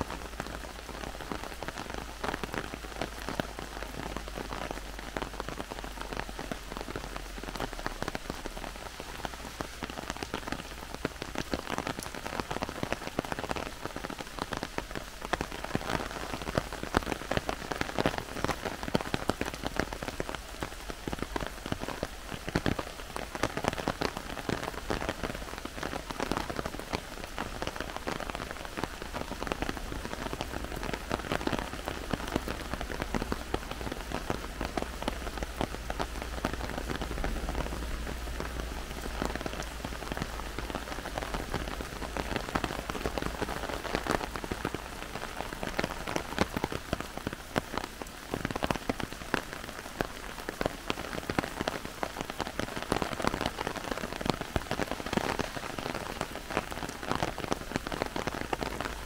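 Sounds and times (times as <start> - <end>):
heavy rain in a forest: 0.0 - 59.0.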